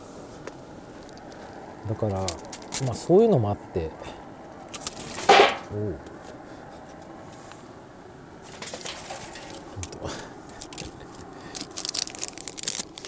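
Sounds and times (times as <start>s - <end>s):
crackling rustling clicks: 0.4s - 1.4s, 2.0s - 3.0s, 4.5s - 6.3s, 8.4s - 13.0s.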